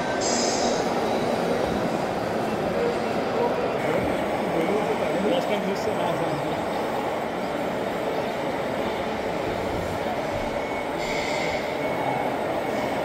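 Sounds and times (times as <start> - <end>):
short hiss: 0.2 - 0.8.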